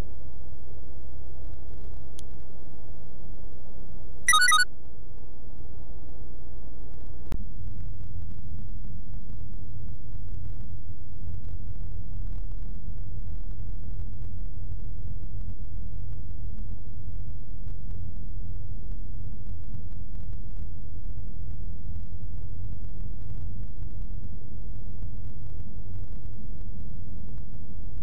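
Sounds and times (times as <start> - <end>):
short high electronic beep: 4.3 - 4.6.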